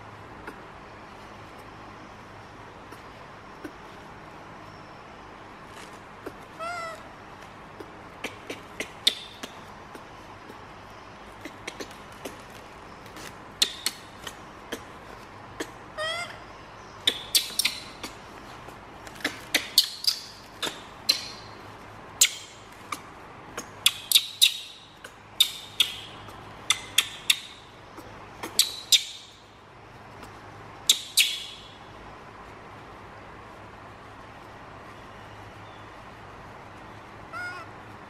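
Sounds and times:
baby monkey squeaking: 0:06.6 - 0:07.0, 0:17.0 - 0:18.2, 0:19.1 - 0:21.5, 0:25.4 - 0:27.7, 0:28.4 - 0:29.4, 0:30.8 - 0:31.7, 0:37.3 - 0:37.7.

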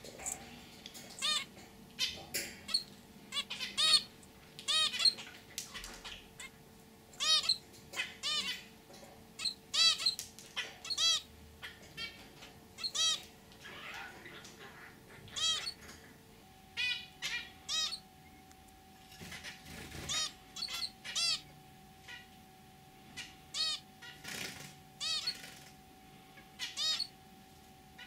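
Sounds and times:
finch calls: 0:01.2 - 0:06.6, 0:07.2 - 0:08.7, 0:09.4 - 0:15.9, 0:16.8 - 0:18.0, 0:19.2 - 0:22.3, 0:23.1 - 0:25.6, 0:26.5 - 0:27.2.

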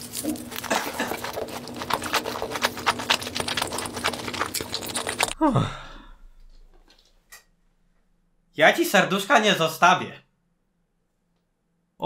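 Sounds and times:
wet smacking and chewing: 0:00.0 - 0:05.4.

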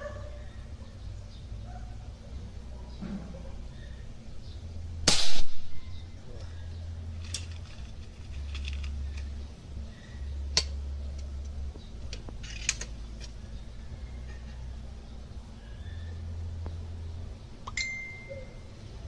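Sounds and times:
air rifle shot: 0:05.0 - 0:05.8.

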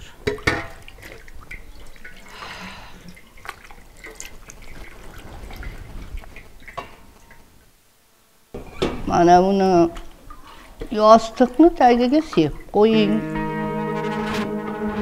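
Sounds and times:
water splashing in a basin: 0:00.0 - 0:07.6, 0:08.6 - 0:12.9.

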